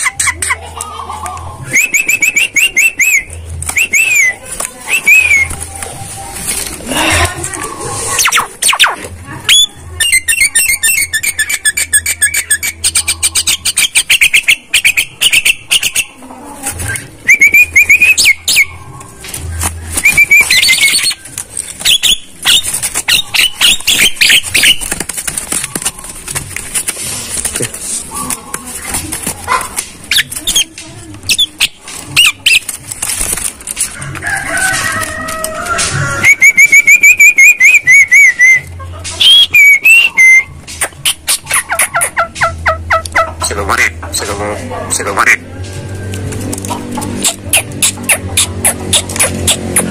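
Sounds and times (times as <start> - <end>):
myna harsh clicking chatter: 0.0 - 49.9
myna rising whistled notes: 1.7 - 5.6.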